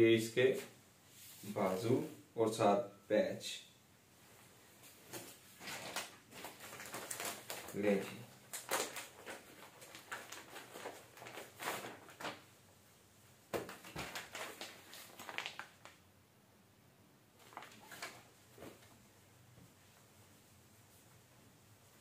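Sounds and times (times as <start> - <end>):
fabric rustling: 4.1 - 12.6, 17.4 - 22.0
plastic packaging crinkling: 5.6 - 12.5, 13.6 - 16.0, 17.4 - 18.3.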